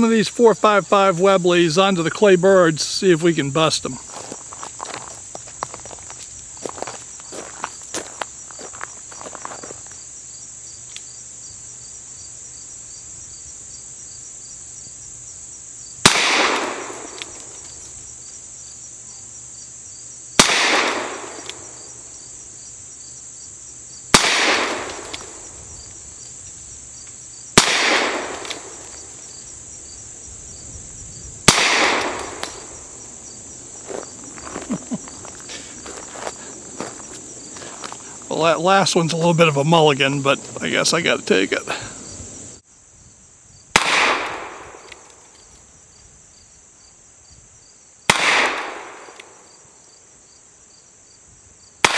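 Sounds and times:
high insect drone: 0.0s - 51.9s
revolver gunshots with echo: 16.0s - 17.3s, 20.4s - 21.8s, 24.1s - 25.4s, 27.6s - 28.9s, 31.4s - 32.8s, 43.8s - 44.9s, 48.1s - 49.4s.

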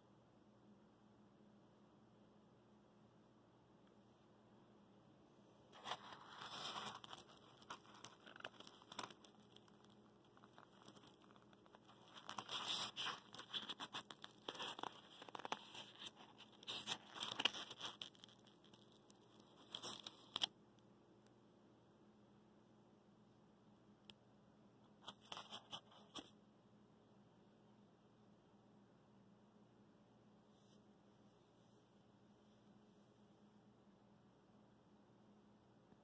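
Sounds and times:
crinkling and scraping: 5.7s - 20.5s, 24.9s - 26.4s
hands rustling insulation: 5.8s - 20.5s.

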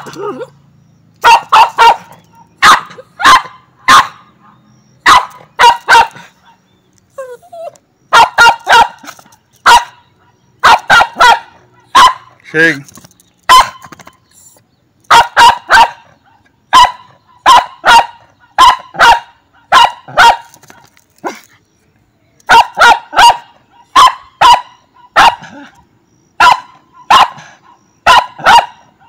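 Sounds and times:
dog barking: 1.2s - 4.2s, 5.1s - 6.6s, 8.1s - 9.0s, 9.7s - 10.0s, 10.6s - 12.3s, 13.5s - 13.9s, 15.1s - 16.1s, 16.7s - 20.5s, 22.5s - 25.7s, 26.4s - 27.5s, 28.1s - 28.9s.

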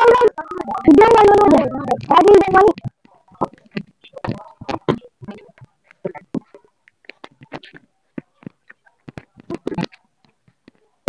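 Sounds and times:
boys talking and calling out: 0.0s - 2.9s.

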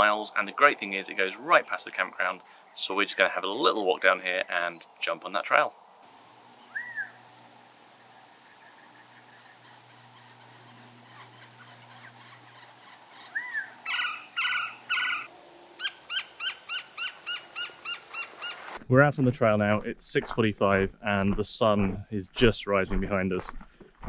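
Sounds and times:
bird calls: 6.5s - 18.8s
whistled bird notes: 6.6s - 7.4s, 8.2s - 18.6s
fast sharp bird notes: 6.6s - 18.8s.

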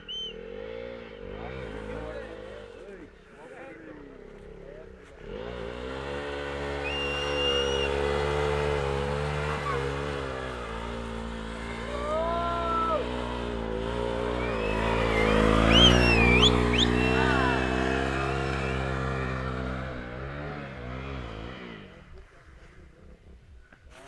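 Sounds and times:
high sliding whistles: 0.0s - 0.5s, 6.8s - 8.3s, 14.2s - 17.6s
motorcycle engine revving hard: 0.3s - 3.0s, 4.3s - 22.1s.

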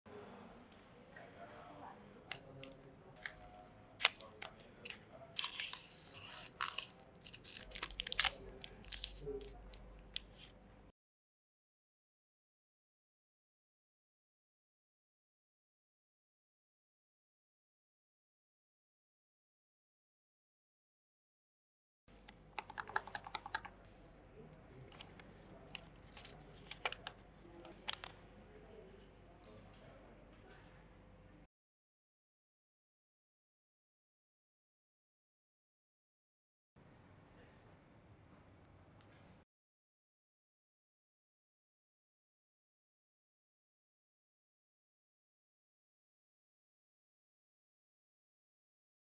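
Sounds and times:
packaging and paper clicking: 2.3s - 10.5s, 22.6s - 23.8s, 24.9s - 28.1s
plastic wrap crinkling: 4.0s - 9.6s, 25.0s - 28.1s.

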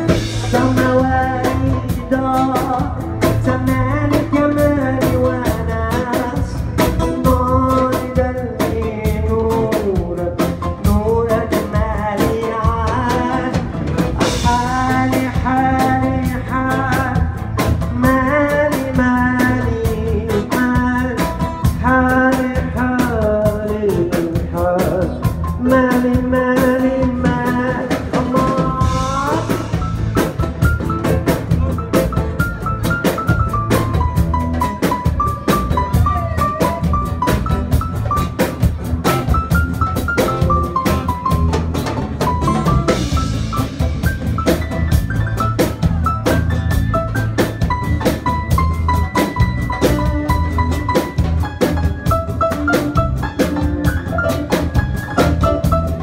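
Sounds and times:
man singing: 0.0s - 30.3s
acoustic guitar: 0.0s - 56.0s
drum kit beat: 0.0s - 56.0s
keyboard: 0.0s - 56.0s.

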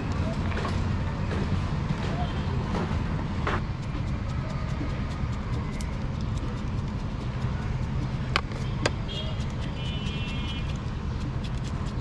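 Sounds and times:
low rumble of street traffic: 0.0s - 12.0s
scissors snipping: 3.5s - 12.0s.

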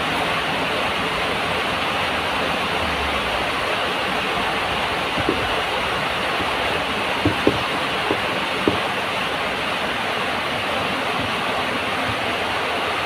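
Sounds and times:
heavy rain pouring: 0.0s - 13.0s
soft knocks: 5.0s - 9.1s, 11.1s - 12.5s.

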